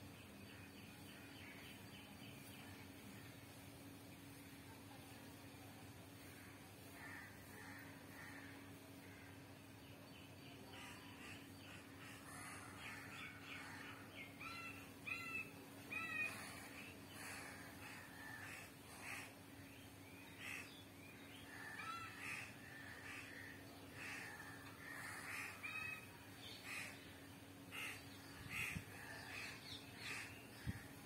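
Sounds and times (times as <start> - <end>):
faint steady hum: 0.0 - 31.0
crows cawing: 6.4 - 9.4, 10.8 - 14.0, 15.9 - 19.3, 21.5 - 26.0, 26.6 - 27.0, 27.7 - 30.9.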